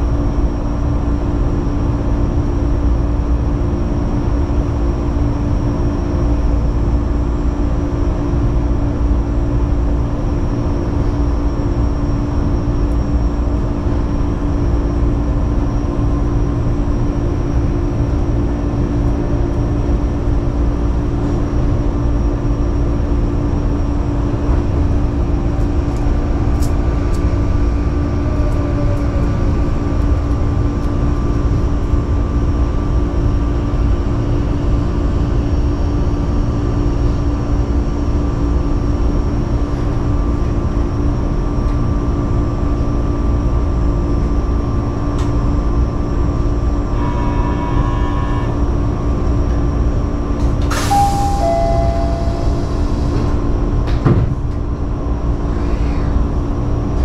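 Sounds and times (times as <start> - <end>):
electrical hum of train: 0.0 - 57.0
train motor whine: 12.5 - 32.9, 46.6 - 49.7, 50.3 - 57.0
electronic tones: 50.9 - 52.8.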